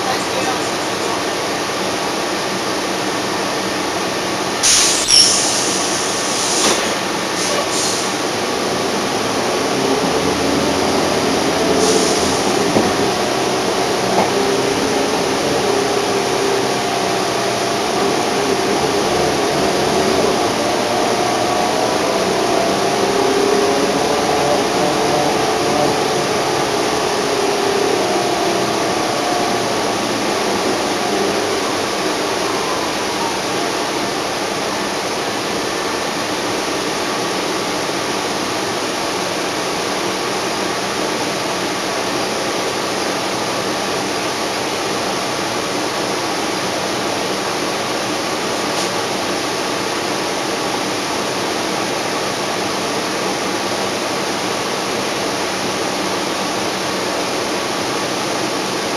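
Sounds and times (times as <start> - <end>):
bus engine whine: 0.0 - 58.9
rushing cabin noise: 5.4 - 33.8.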